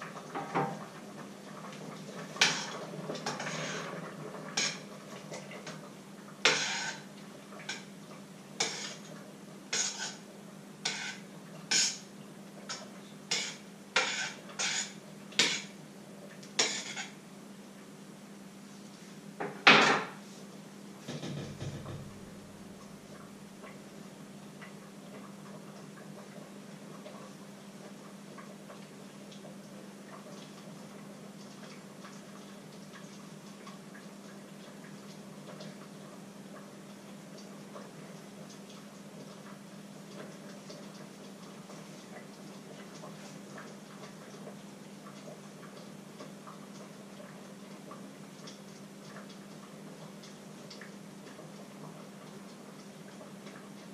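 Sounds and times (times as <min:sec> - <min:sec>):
faint steady hum: 0:00.0 - 0:53.9
kitchenware clattering: 0:02.4 - 0:04.9, 0:06.5 - 0:07.1, 0:10.9 - 0:12.0, 0:12.7 - 0:15.7, 0:16.6 - 0:17.2, 0:19.4 - 0:20.2, 0:21.0 - 0:22.2.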